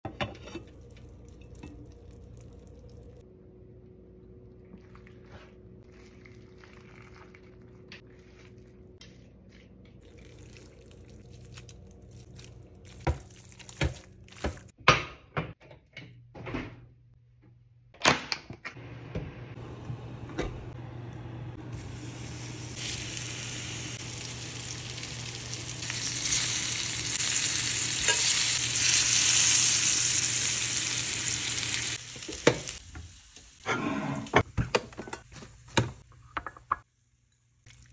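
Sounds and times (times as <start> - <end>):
pan and utensils clanking: 0.0 - 1.8, 28.0 - 28.6
fruit sizzling in skillet: 21.8 - 33.7.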